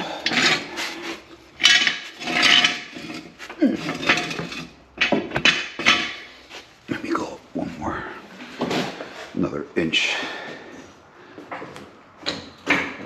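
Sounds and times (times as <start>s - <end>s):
metal tools clattering: 0.0s - 6.5s.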